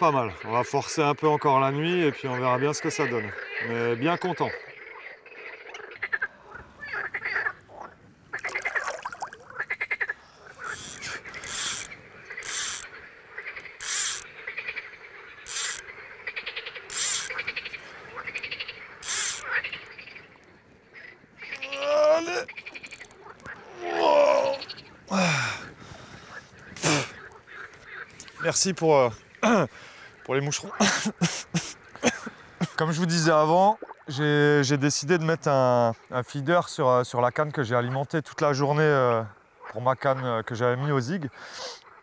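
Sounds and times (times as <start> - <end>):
frogs croaking in chorus: 0.0 - 42.0
gliding frog calls: 1.9 - 32.6.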